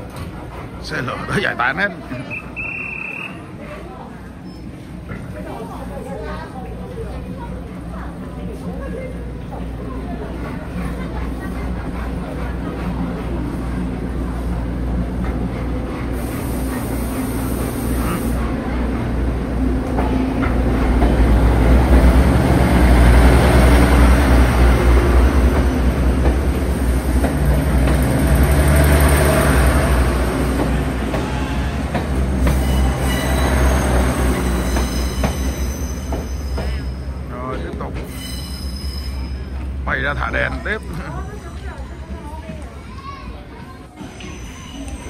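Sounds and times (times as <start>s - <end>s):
wheels squealing on rails: 0.0s - 5.3s, 20.0s - 45.0s
train rumbling past: 0.0s - 45.0s.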